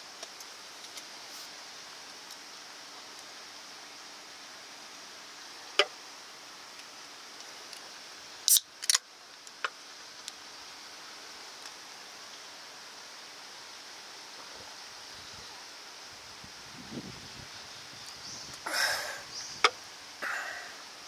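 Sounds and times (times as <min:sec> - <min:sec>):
steady background hiss: 0:00.0 - 0:21.0
fizz of escaping gas: 0:08.4 - 0:09.0
can pull tab cracking: 0:08.5 - 0:09.0.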